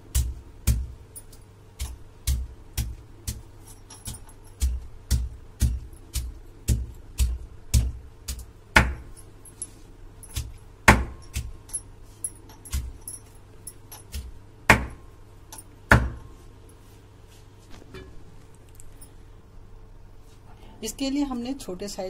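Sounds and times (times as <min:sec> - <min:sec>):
grinding stone pounding on stone slab: 0:01.7 - 0:09.3, 0:10.2 - 0:13.3.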